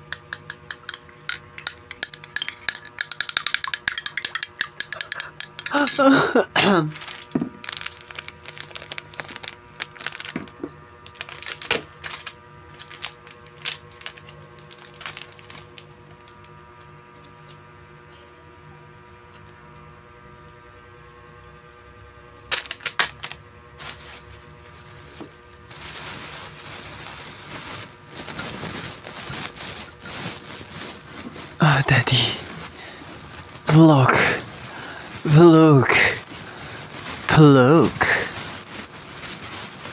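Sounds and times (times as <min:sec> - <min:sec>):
plastic packaging crinkling: 0:01.2 - 0:05.9, 0:06.9 - 0:16.4, 0:22.5 - 0:39.9.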